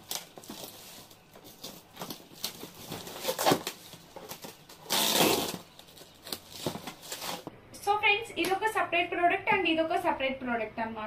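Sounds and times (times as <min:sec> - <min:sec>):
plastic wrap crinkling: 0:00.0 - 0:07.5.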